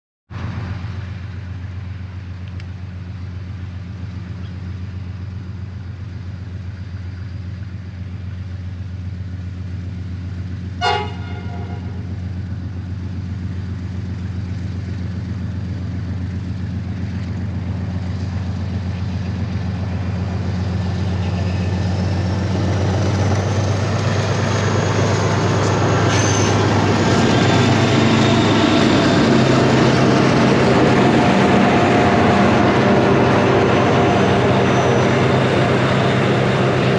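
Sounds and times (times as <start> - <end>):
locomotive engine drone: 0.3 - 36.9
train wheel noise: 0.4 - 36.9
train horn toot: 10.8 - 12.2.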